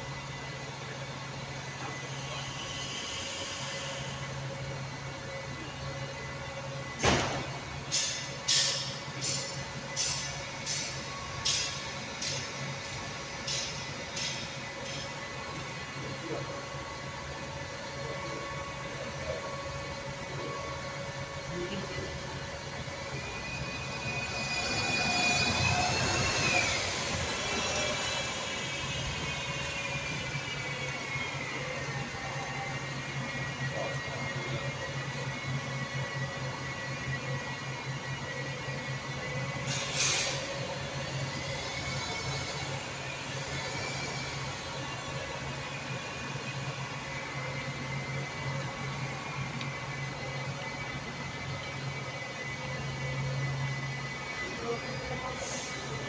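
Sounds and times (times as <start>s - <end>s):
bus driving past: 22.4s - 33.3s
bus engine idling: 25.7s - 56.0s.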